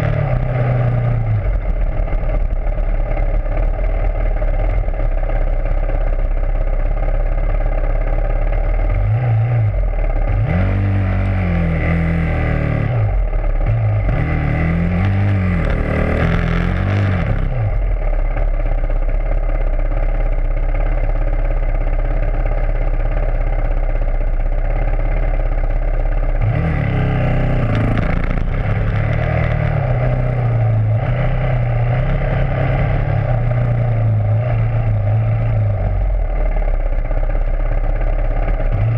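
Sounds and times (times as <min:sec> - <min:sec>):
rattle: 0:00.0 - 0:09.0, 0:15.0 - 0:38.9
dirt bike engine revving: 0:09.0 - 0:17.7, 0:26.4 - 0:35.8.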